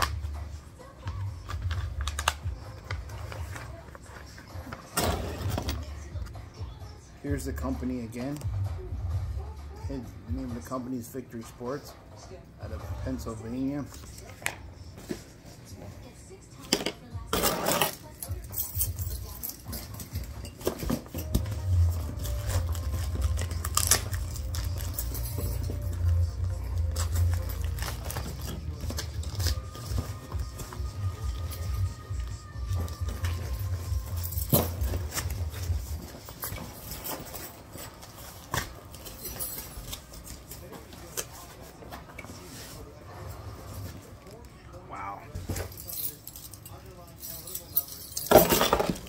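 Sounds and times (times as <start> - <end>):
cardboard and plastic rustling: 19.2 - 43.0.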